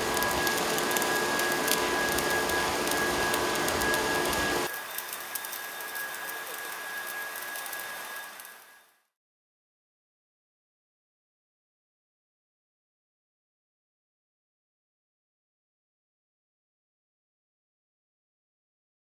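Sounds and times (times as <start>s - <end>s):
arc welding crackling hiss: 0.0s - 9.0s
steady high whine: 0.0s - 9.1s.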